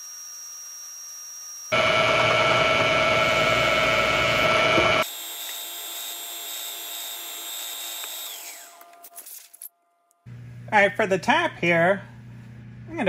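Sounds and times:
spindle whine spinning down: 1.7s - 5.0s
milling machine cutting metal: 1.7s - 8.9s.

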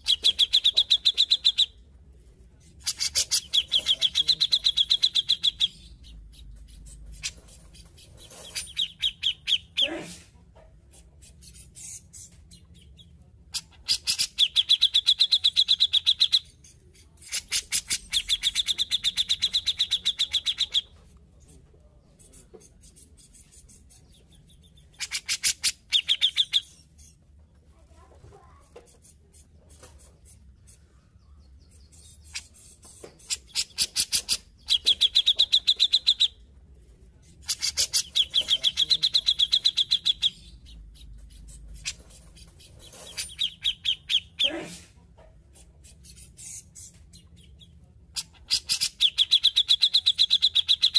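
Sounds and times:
bulbul chattering calls: 0.0s - 1.8s, 2.8s - 9.9s, 23.7s - 26.8s, 37.4s - 44.5s, 48.2s - 50.9s.

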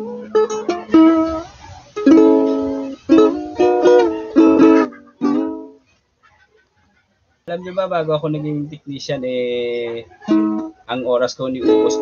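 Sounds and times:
ukulele strummed chords: 0.0s - 5.9s, 9.6s - 12.0s.

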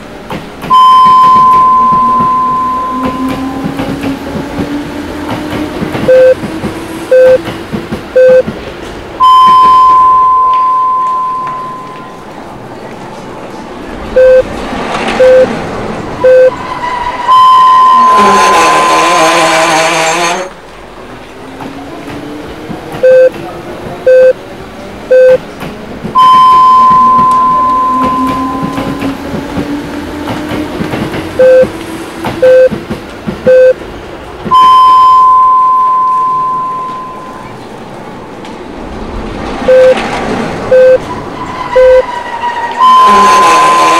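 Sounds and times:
electronic beeps: 0.7s - 3.4s, 6.1s - 6.4s, 7.1s - 7.4s, 8.2s - 8.4s, 9.2s - 12.1s, 14.2s - 14.5s, 15.2s - 15.5s, 16.2s - 16.5s, 17.3s - 19.0s, 23.0s - 23.3s, 24.1s - 24.4s, 25.1s - 25.4s, 26.2s - 29.0s, 31.4s - 31.7s, 32.4s - 32.7s, 34.5s - 37.6s, 39.7s - 40.0s, 40.7s - 41.0s, 41.8s - 42.0s, 42.8s - 43.9s
loud harsh noise: 15.2s - 20.5s, 40.8s - 43.9s.

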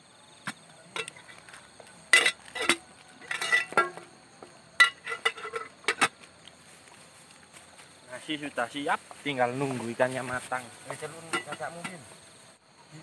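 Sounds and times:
cooking utensils clinking: 1.0s - 1.4s, 2.0s - 4.1s, 4.8s - 6.2s, 11.3s - 11.7s.

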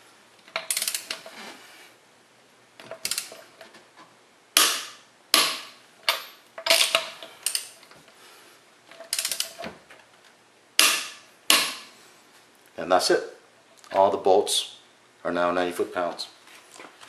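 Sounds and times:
sharp metallic wrench clicks: 0.6s - 1.1s, 3.0s - 3.4s, 4.6s - 7.8s, 9.1s - 9.6s
torque wrench ratchet clicking: 0.7s - 1.1s, 9.1s - 9.6s.

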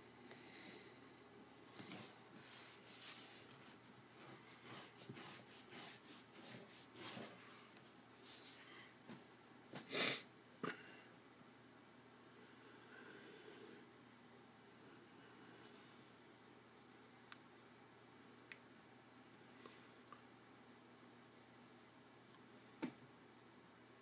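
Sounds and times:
person breathing: 0.2s - 2.7s, 8.5s - 9.0s, 12.4s - 13.9s
loud sniff: 9.8s - 10.3s.

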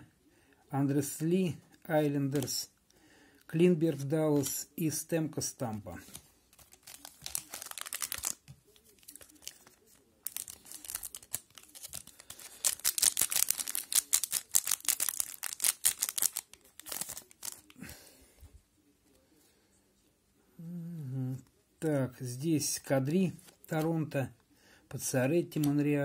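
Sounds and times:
foil wrapper tearing and crinkling: 6.6s - 17.8s.

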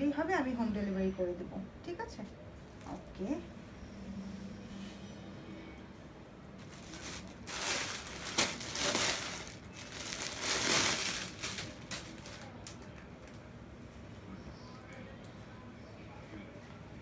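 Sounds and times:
plastic bag crinkling: 6.6s - 13.3s.

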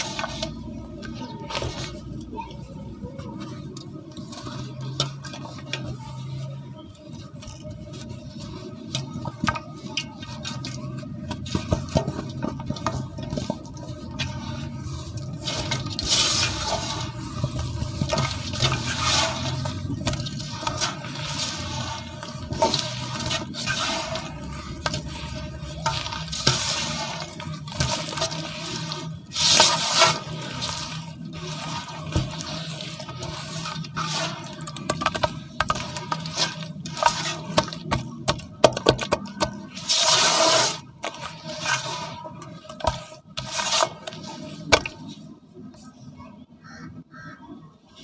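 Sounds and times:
wet cement squelching: 0.0s - 45.3s
crumbly crackles: 0.0s - 47.3s
water sloshing: 7.1s - 45.2s.

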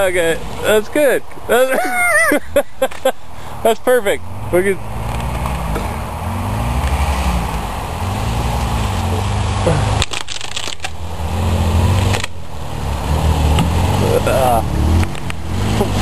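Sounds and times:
truck engine revving: 3.8s - 16.0s
brief crackles: 9.8s - 11.0s, 12.0s - 12.4s.

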